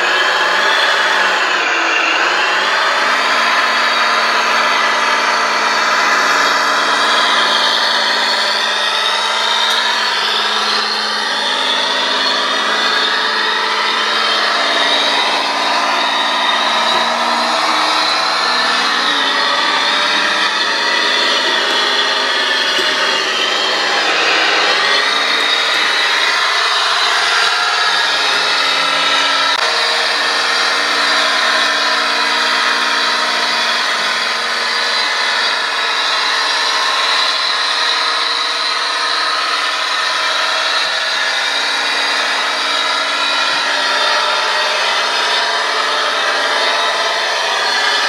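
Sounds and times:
electric motor whine: 0.0 - 48.0.

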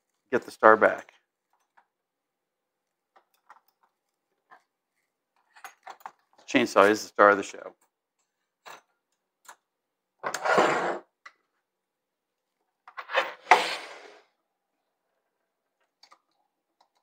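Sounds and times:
tool set down with scrape: 12.9 - 14.2
knock and scrape on bench: 13.0 - 14.2.

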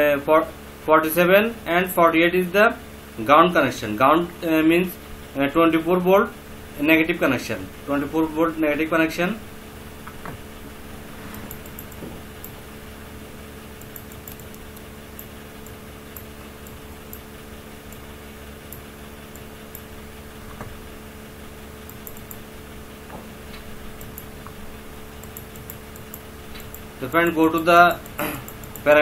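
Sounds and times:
steady hum with fixed tones: 0.0 - 29.0
mouse wheel scrolling: 11.1 - 12.6, 13.7 - 20.7, 21.8 - 22.4, 24.0 - 24.6, 25.2 - 29.0
computer mouse clicking: 11.4 - 12.6, 13.8 - 17.3, 21.8 - 22.4, 24.0 - 24.6, 25.2 - 27.2, 27.9 - 28.9.

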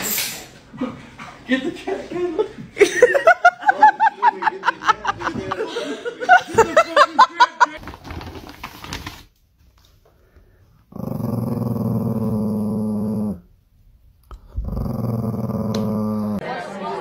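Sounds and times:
small dog growling: 10.9 - 13.5, 14.3 - 16.4.

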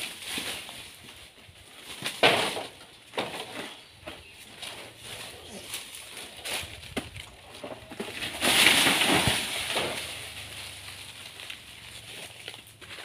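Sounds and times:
leaves crashing down: 0.0 - 1.0, 5.0 - 13.0.

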